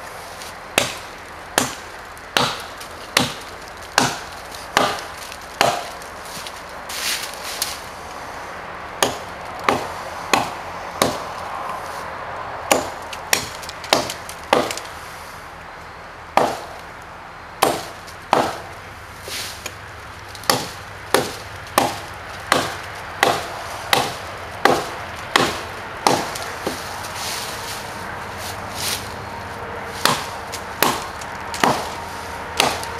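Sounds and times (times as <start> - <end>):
axe chopping into log: 0.8 - 1.0, 1.6 - 6.0, 9.0 - 11.3, 12.7 - 14.9, 16.4 - 16.8, 17.6 - 18.7, 20.4 - 26.9, 30.0 - 31.9, 32.6 - 32.9.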